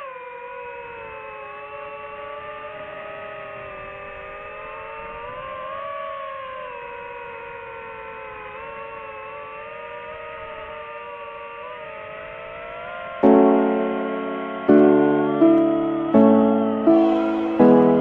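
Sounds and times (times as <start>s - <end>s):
drone propellers whining: 13.2s - 18.0s
piano chord: 13.2s - 18.0s.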